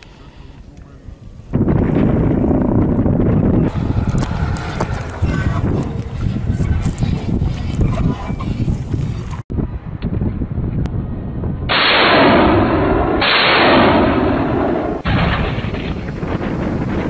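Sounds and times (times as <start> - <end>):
rocket salvo roaring: 1.5 - 6.6, 11.7 - 17.0
field gun shot: 11.7 - 16.7.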